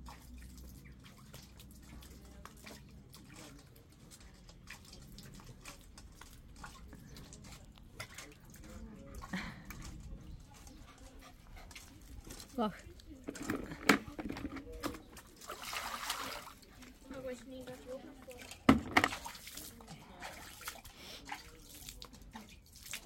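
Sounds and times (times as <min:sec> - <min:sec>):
dog splashing in water bowl: 0:00.0 - 0:23.0
dog sounds: 0:09.8 - 0:13.5.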